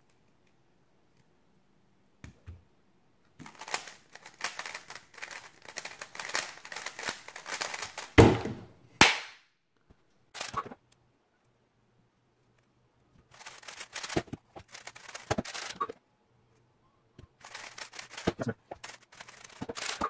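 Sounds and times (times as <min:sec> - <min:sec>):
speed cube rattling clicks: 0:03.4 - 0:08.2, 0:13.3 - 0:15.8, 0:17.4 - 0:20.0.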